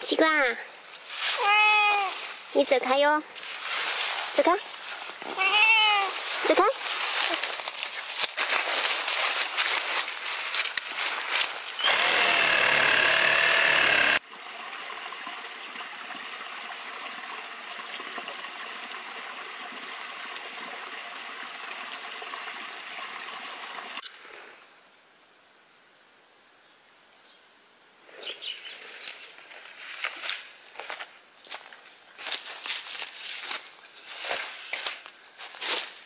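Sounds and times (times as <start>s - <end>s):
loud steady machine noise: 11.8s - 14.2s
stream trickling over stones: 14.3s - 24.0s.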